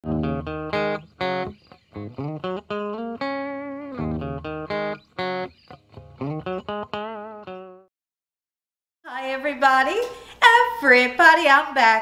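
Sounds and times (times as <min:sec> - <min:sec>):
guitar plucked melody: 0:00.0 - 0:07.9.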